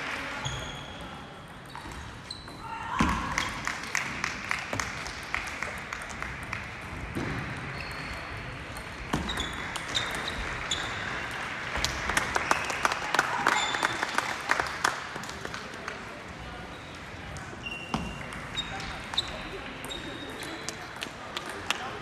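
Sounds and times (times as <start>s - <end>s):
murmur of voices: 10.9s - 22.0s.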